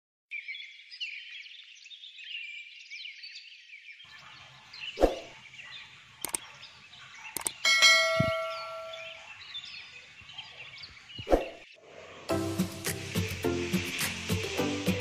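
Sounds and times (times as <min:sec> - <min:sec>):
birds chirping and twittering: 0:00.3 - 0:15.0
sharp clicks: 0:06.2 - 0:06.5, 0:07.4 - 0:07.6
ringing metallic clang: 0:07.6 - 0:09.2.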